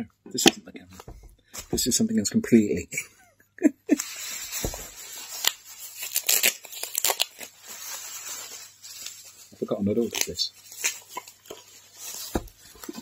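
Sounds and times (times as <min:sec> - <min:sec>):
bubble wrap crinkling: 0:03.9 - 0:13.0
wrapping tearing: 0:03.9 - 0:13.0.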